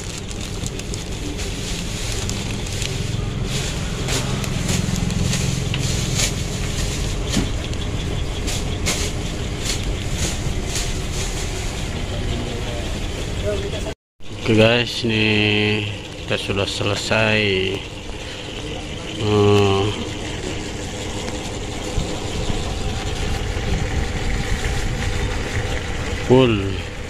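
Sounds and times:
plastic bags rustling: 0.0s - 7.6s
motor rumbling: 0.0s - 27.0s.

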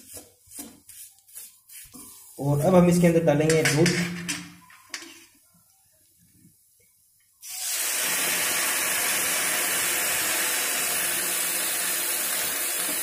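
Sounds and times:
milk sizzling in hot pan: 7.4s - 13.0s.

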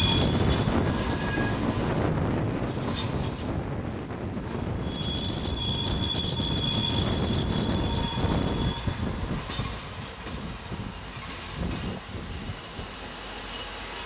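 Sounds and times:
train wheels squealing: 0.0s - 1.6s, 4.8s - 14.0s.

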